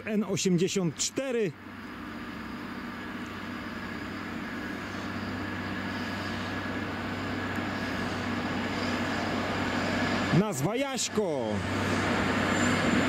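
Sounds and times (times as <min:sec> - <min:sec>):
diesel train engine humming: 0:00.0 - 0:13.0.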